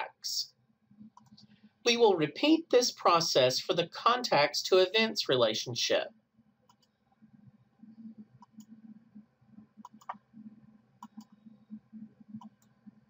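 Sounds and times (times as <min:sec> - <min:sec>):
faint low hum: 0:00.0 - 0:13.0
computer mouse clicks: 0:01.0 - 0:01.6, 0:06.7 - 0:06.9, 0:08.4 - 0:08.8, 0:09.8 - 0:10.2, 0:11.0 - 0:13.0.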